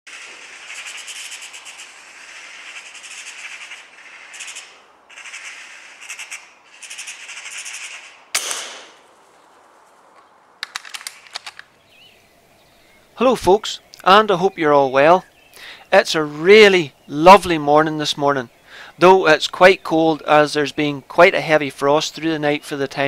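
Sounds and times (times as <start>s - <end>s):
magpie chattering: 0.1s - 8.3s
sharp clicks: 7.8s - 9.0s, 10.2s - 11.8s
sharp gunshot: 8.3s - 9.1s.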